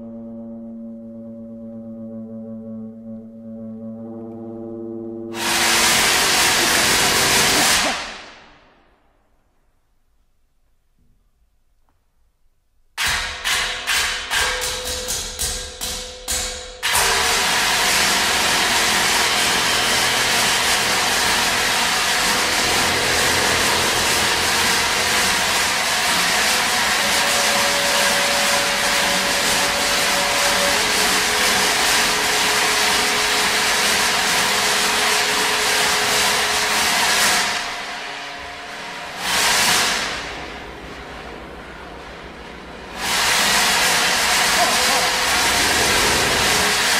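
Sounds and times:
chamber music ensemble: 0:00.0 - 0:08.4, 0:39.9 - 0:46.9
dense rushing rubbing noise: 0:05.4 - 0:08.9, 0:17.6 - 0:46.9.

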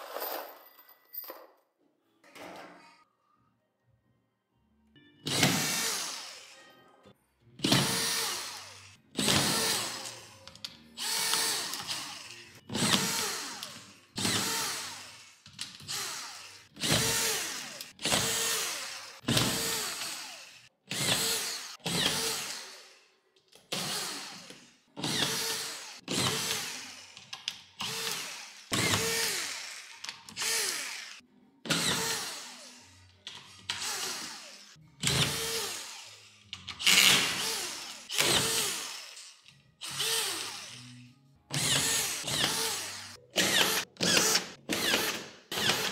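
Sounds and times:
cordless screwdriver whirring: 0:41.5 - 0:45.9.

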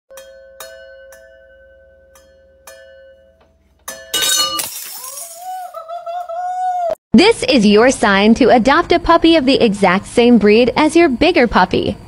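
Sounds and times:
glass bottles clinking: 0:00.1 - 0:05.6
bottles clattering: 0:03.8 - 0:05.6.

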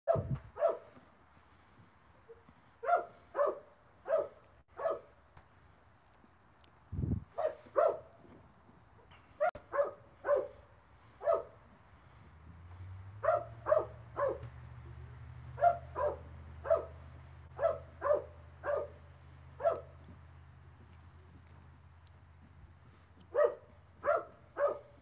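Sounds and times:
dog barking: 0:00.1 - 0:01.0, 0:02.8 - 0:05.2, 0:07.4 - 0:08.2, 0:09.4 - 0:10.6, 0:11.2 - 0:11.6, 0:13.2 - 0:14.5, 0:15.4 - 0:20.0, 0:23.3 - 0:25.0.

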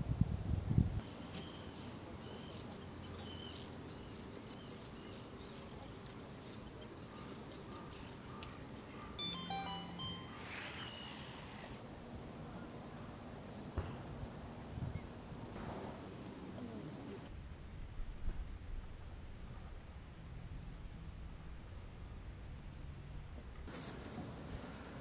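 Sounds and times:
birds chirping: 0:01.0 - 0:11.8
whistled bird notes: 0:01.1 - 0:11.8.

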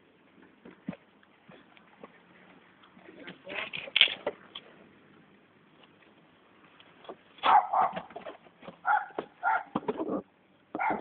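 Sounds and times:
dog barking: 0:07.4 - 0:08.2, 0:08.8 - 0:09.8, 0:10.8 - 0:11.0.

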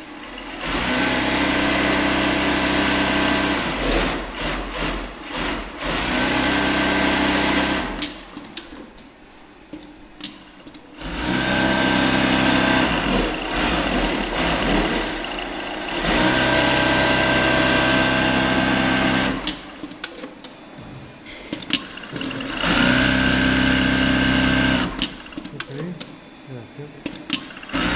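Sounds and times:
sewing machine stitching: 0:11.0 - 0:20.2, 0:21.6 - 0:25.6, 0:27.1 - 0:27.9.

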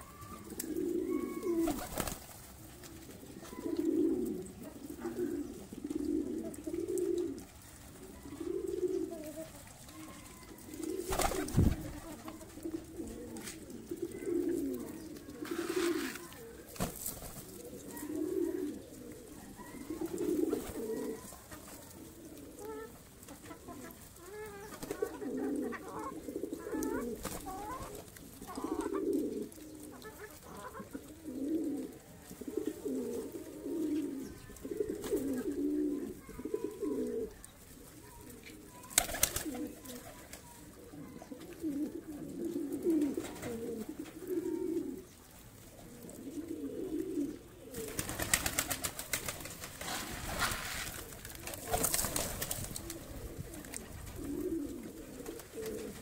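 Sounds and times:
pigeons cooing: 0:00.0 - 0:56.0
wings flapping: 0:00.5 - 0:03.0, 0:10.8 - 0:13.5, 0:15.4 - 0:17.8, 0:19.8 - 0:21.8, 0:24.5 - 0:25.2, 0:26.7 - 0:28.9, 0:38.8 - 0:40.6, 0:47.7 - 0:56.0.

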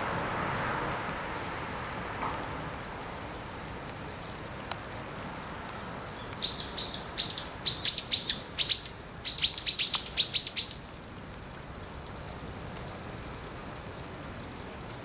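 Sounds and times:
bird chirping: 0:06.2 - 0:10.8.

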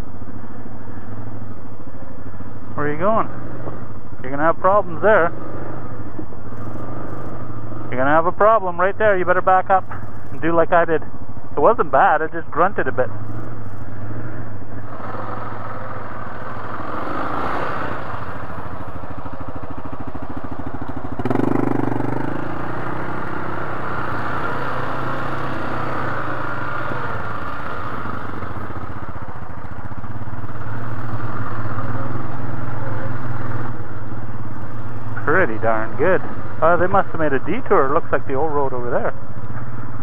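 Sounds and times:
atv engine running: 0:00.0 - 0:40.0.

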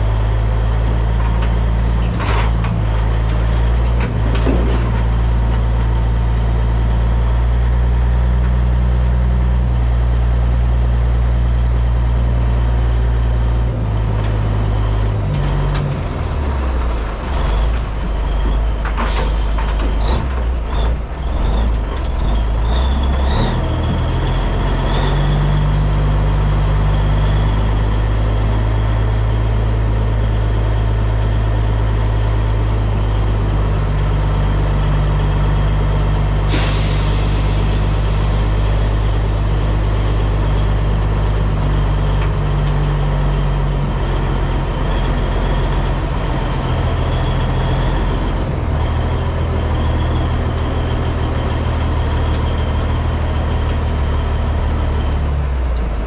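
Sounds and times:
truck engine droning: 0:00.0 - 0:56.0
air brake hiss: 0:36.5 - 0:40.7.

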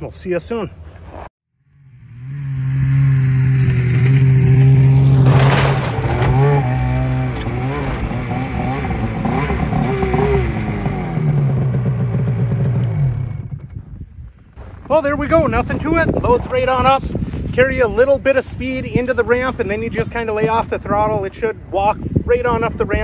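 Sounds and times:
snowmobile engine revving: 0:01.8 - 0:13.5.

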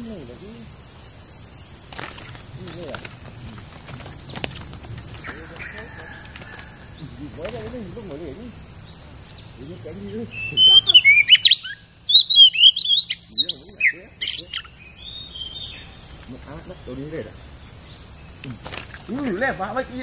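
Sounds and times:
high insect buzz: 0:00.0 - 0:20.0
bird singing whistles and chirps: 0:09.3 - 0:16.0.

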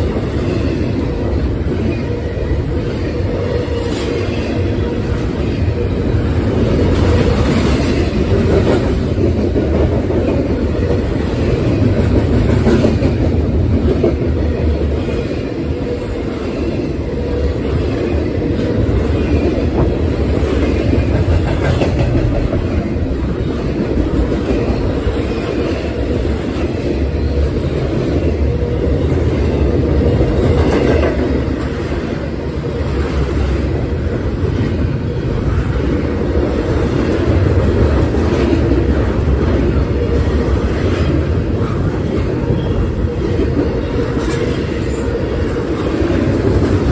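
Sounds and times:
steel wheels rumbling on rails: 0:00.0 - 0:46.9
wheels clacking over rail joints: 0:17.6 - 0:32.0.

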